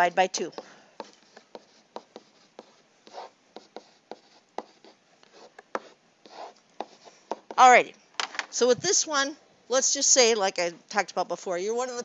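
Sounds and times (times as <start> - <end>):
pen scratching strokes: 0.0 - 7.7.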